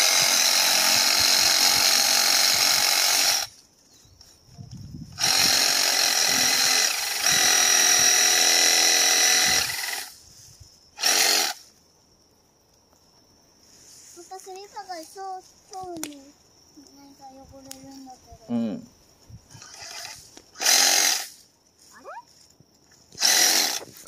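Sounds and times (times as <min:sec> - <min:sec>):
reciprocating saw cutting branch: 0:23.2 - 0:24.0.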